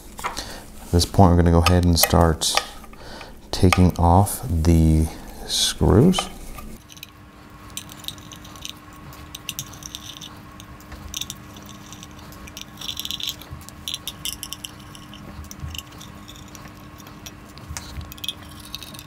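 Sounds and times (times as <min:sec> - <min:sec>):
faint steady hum: 0:00.0 - 0:19.0
small metal screws clicking: 0:18.0 - 0:19.0.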